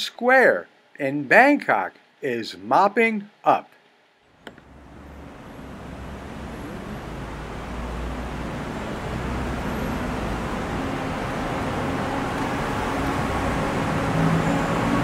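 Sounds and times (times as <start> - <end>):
low traffic rumble: 4.4 - 15.0.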